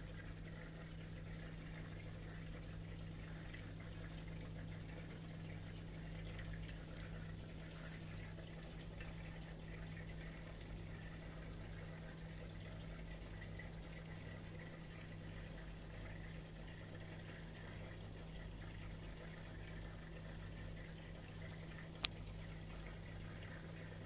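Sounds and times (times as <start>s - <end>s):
aquarium pump humming: 0.0s - 24.0s
trickling bubbling water: 0.0s - 24.0s.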